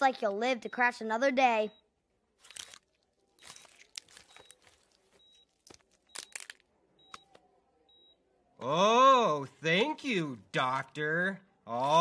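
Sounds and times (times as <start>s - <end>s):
cartoon crunching and tearing noises: 2.4s - 7.3s.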